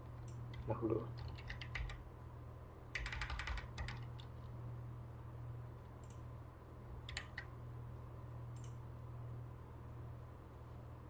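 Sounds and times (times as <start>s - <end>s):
steady low hum: 0.0s - 11.0s
keyboard key presses: 0.3s - 2.0s, 3.0s - 4.3s, 7.0s - 7.5s.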